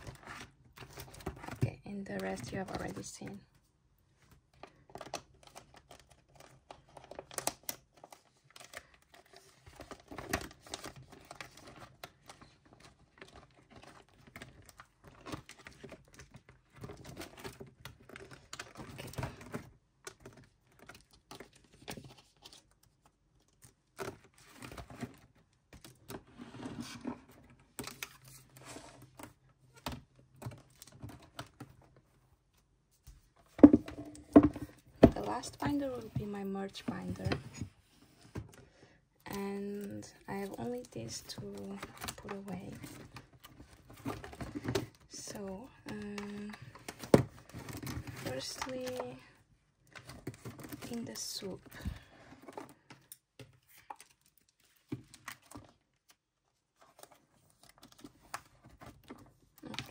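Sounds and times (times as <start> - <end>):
plastic pages crinkling: 4.6 - 26.2, 39.3 - 59.9.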